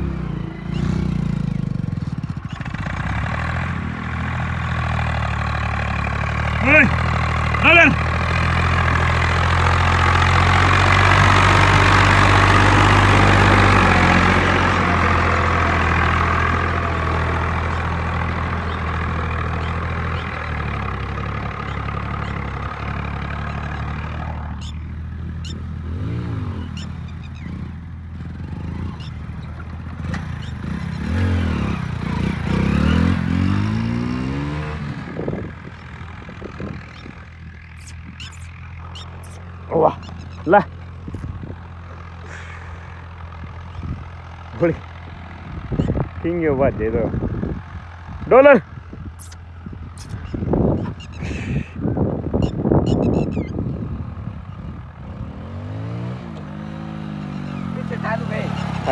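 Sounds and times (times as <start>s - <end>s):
tractor diesel engine under load: 0.0s - 58.9s
pitched sweeps: 36.9s - 40.5s.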